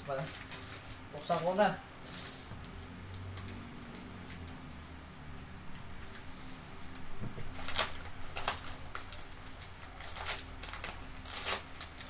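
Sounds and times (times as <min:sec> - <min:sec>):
wrapping paper tearing: 0:07.5 - 0:12.0.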